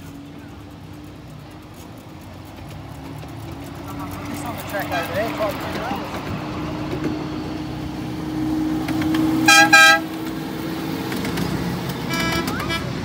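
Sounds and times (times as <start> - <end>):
miniature locomotive horn toots: 9.4 - 10.2, 12.0 - 13.0.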